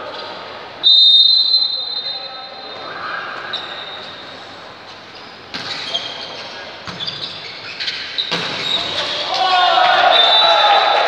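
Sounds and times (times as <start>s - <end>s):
referee's whistle blast: 0.8s - 2.8s.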